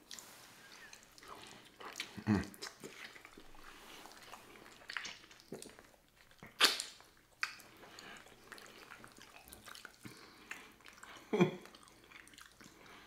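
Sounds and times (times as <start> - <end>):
wet chewing and lip smacking: 0.0 - 13.0.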